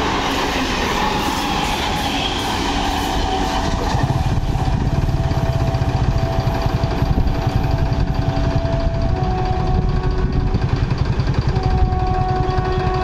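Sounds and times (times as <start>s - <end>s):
electric train running: 0.0s - 13.0s
fast-pulsing low rumble: 3.7s - 12.7s.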